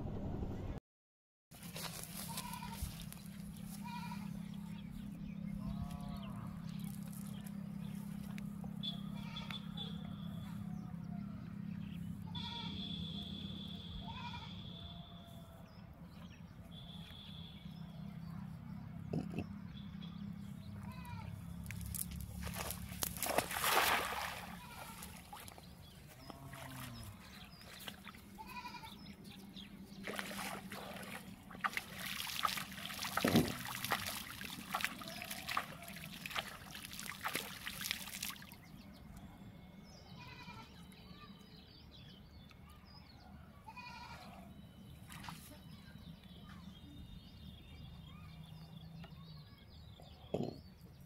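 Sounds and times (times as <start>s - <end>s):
steady low hum: 1.6s - 15.5s
water splashing and dripping: 21.6s - 25.6s, 30.0s - 38.6s.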